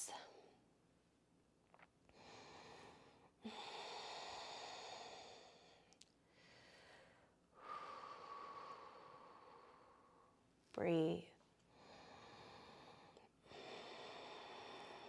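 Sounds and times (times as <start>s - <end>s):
slow breathing: 2.1s - 10.4s, 11.6s - 15.0s.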